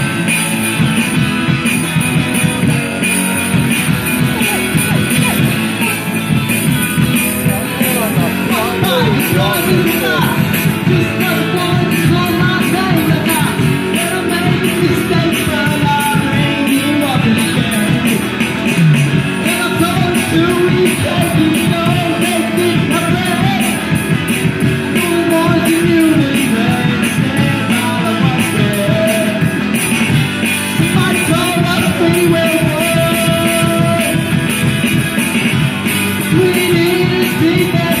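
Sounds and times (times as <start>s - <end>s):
bass guitar: 0.0s - 38.0s
drum kit beat: 0.0s - 38.0s
electric guitars: 0.0s - 38.0s
person singing: 7.4s - 18.4s, 19.3s - 23.9s, 24.8s - 29.6s, 30.8s - 34.4s, 36.2s - 38.0s.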